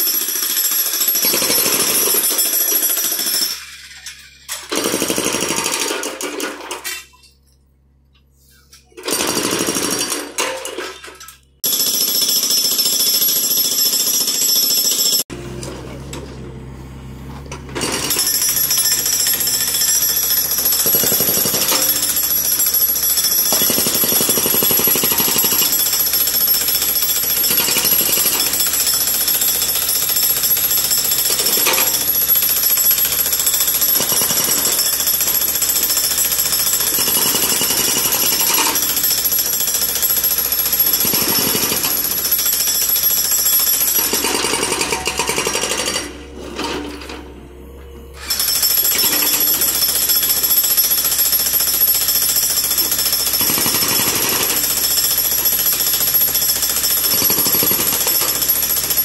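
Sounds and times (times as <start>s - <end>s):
hydraulic breaker hammering concrete: 0.0s - 4.0s, 4.6s - 6.8s, 8.9s - 10.9s, 11.6s - 16.5s, 17.4s - 47.4s, 48.2s - 59.0s
excavator engine running: 15.3s - 22.8s.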